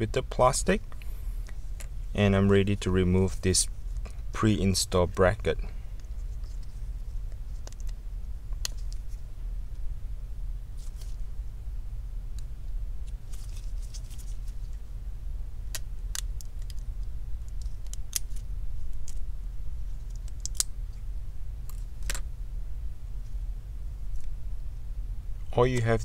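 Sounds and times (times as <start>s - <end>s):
low hum: 0.0s - 26.0s
sharp clicks and light scratching: 20.0s - 21.0s.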